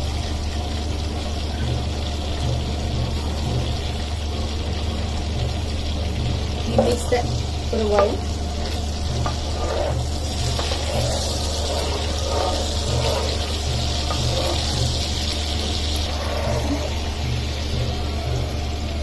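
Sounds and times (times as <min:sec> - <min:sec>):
seeds sizzling in oil: 0:00.0 - 0:19.0.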